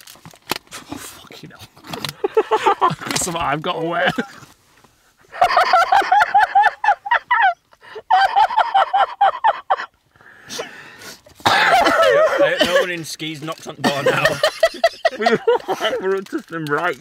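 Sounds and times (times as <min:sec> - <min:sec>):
man laughing high-pitched: 0:05.3 - 0:09.9, 0:11.5 - 0:12.9, 0:13.8 - 0:16.2.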